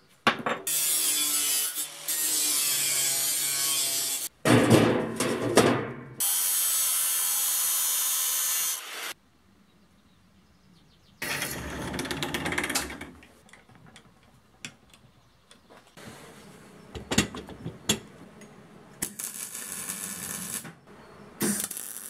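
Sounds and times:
angle grinder cutting steel: 0.7s - 4.3s, 6.2s - 9.2s.

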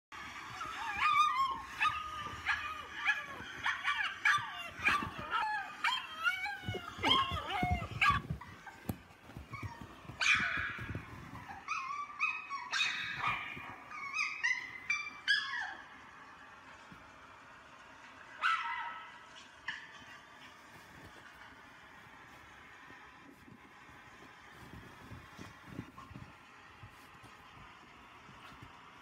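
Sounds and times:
dogs howling and yipping: 0.2s - 16.0s.

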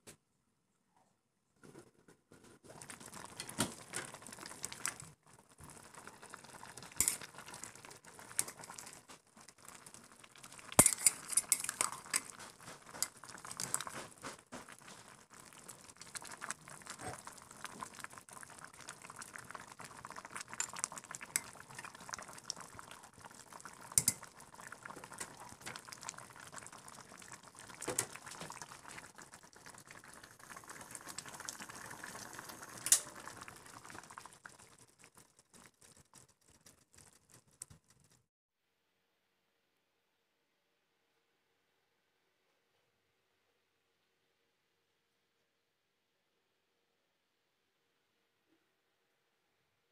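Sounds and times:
soup bubbling: 2.3s - 38.3s
ladle clinking against pot: 10.8s - 12.3s.

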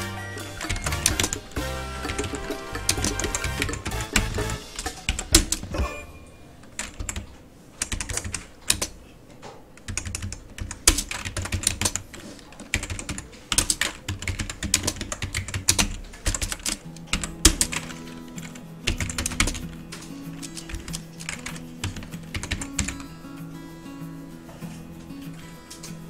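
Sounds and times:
low background music: 0.0s - 6.6s, 16.3s - 26.0s.

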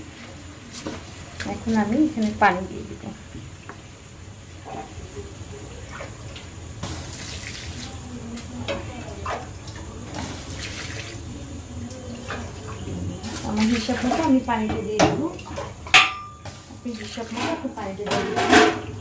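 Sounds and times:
water pouring into metal pot: 5.7s - 19.0s.

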